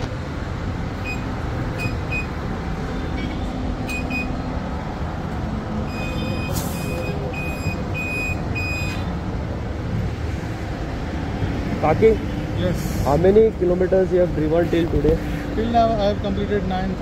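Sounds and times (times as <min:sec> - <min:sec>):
traffic rumble: 0:00.0 - 0:17.0
tyre inflator electronic beeps: 0:01.0 - 0:02.4, 0:03.2 - 0:04.4, 0:05.9 - 0:09.1.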